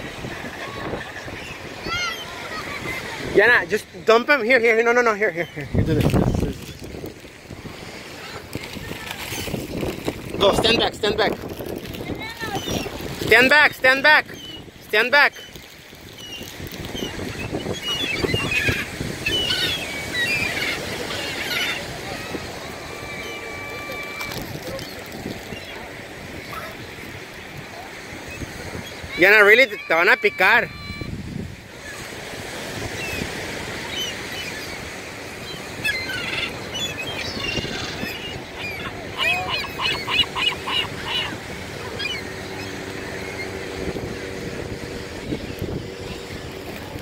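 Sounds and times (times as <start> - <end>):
gulls squawking: 0.0 - 47.0
steady background rush: 37.9 - 47.0.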